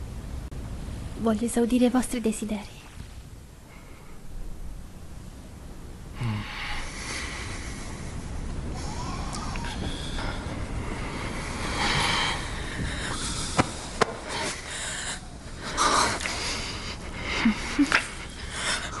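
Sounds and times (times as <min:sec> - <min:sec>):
breathy exhales: 0:06.2 - 0:19.0.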